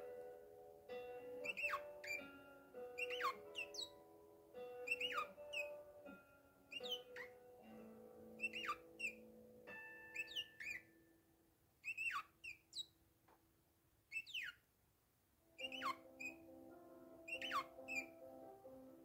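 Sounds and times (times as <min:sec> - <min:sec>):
sustained background music: 0:00.0 - 0:10.9, 0:15.5 - 0:19.0
parakeet whistled calls: 0:01.4 - 0:02.3, 0:03.0 - 0:04.0, 0:04.8 - 0:05.7, 0:06.7 - 0:07.4, 0:08.4 - 0:09.2, 0:10.2 - 0:10.9, 0:11.8 - 0:12.9, 0:14.1 - 0:14.6, 0:15.6 - 0:16.4, 0:17.3 - 0:18.2.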